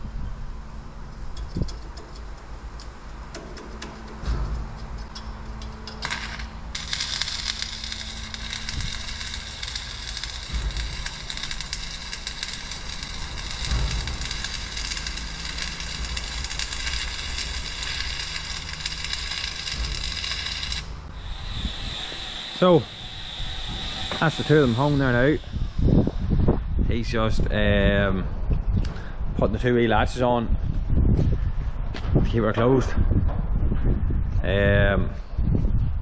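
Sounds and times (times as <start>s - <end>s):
arc welding crackling sizzle: 1.5s - 26.4s.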